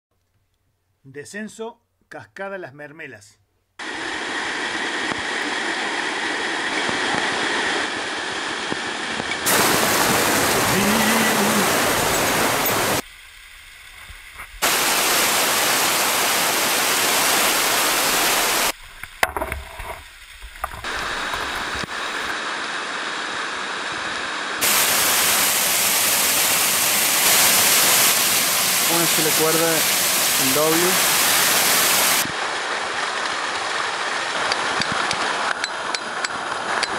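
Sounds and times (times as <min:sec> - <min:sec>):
waterfall rushing: 0:03.8 - 0:13.0, 0:14.6 - 0:18.8, 0:20.8 - 0:36.9.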